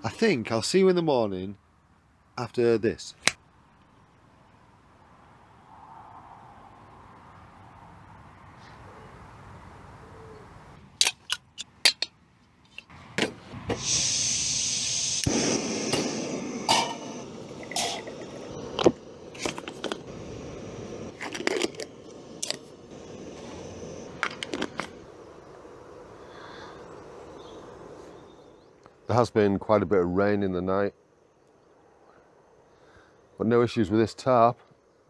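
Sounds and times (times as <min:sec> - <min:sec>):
gas hissing and burning: 0:13.4 - 0:29.0
metal pot and utensils clinking: 0:17.6 - 0:18.2.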